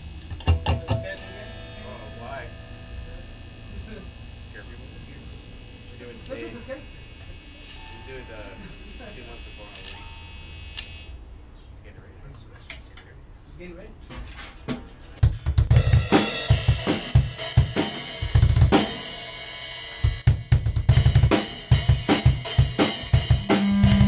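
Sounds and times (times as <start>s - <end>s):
heavy bass drum hits: 0.0s - 6.2s, 15.2s - 19.0s, 20.1s - 24.0s
drum kit playing: 0.0s - 6.7s, 14.7s - 24.0s
crashing cymbals: 1.0s - 8.6s, 15.9s - 20.2s, 21.0s - 24.0s.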